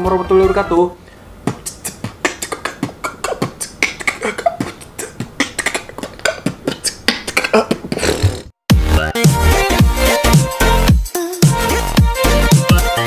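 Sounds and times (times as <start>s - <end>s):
man beatboxing: 1.4s - 9.4s, 11.1s - 13.0s.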